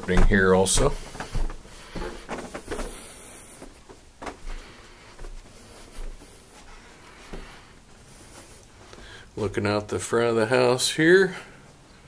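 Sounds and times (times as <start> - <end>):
footsteps on carpet: 0.0 - 9.2.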